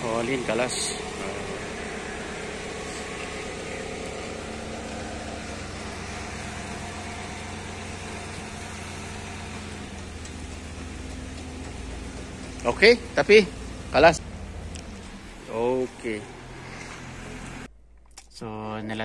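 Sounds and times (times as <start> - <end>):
engine idling: 0.0 - 17.7.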